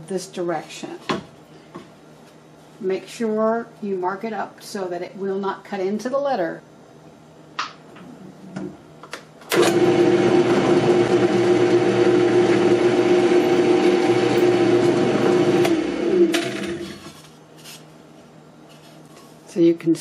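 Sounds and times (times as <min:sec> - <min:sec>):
drill press motor humming: 0:09.5 - 0:17.0.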